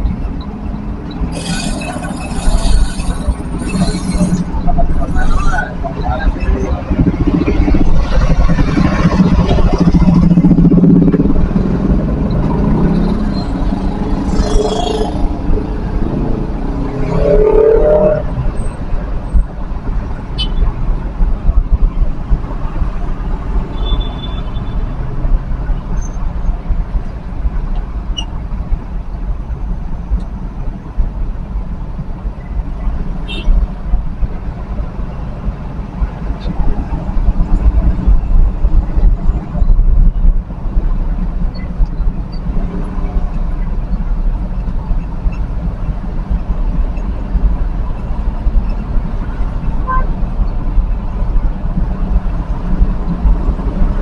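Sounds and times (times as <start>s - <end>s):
minibus engine: 0.0s - 54.0s
vehicle engine and road rumble: 0.0s - 54.0s
voices: 1.1s - 10.0s.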